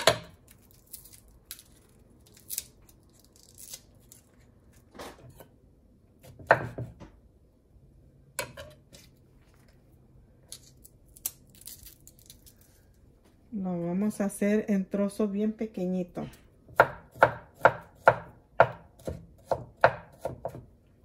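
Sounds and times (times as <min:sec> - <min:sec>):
garlic skin tearing: 0:00.3 - 0:04.8, 0:10.5 - 0:12.8
knife knocking on wooden board: 0:06.3 - 0:07.1.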